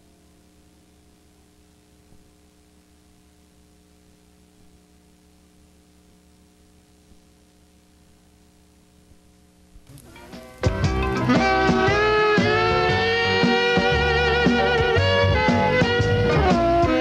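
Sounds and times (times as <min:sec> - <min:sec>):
light hiss: 0:00.0 - 0:13.6
faint electrical mains hum: 0:00.0 - 0:17.0.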